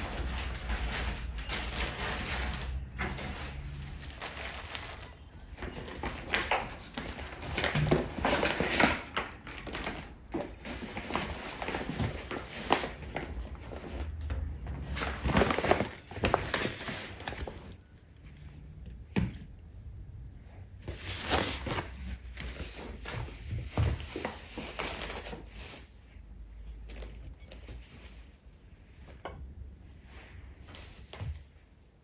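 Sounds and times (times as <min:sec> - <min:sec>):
plastic bags crinkling: 0:00.0 - 0:17.8, 0:20.9 - 0:25.9.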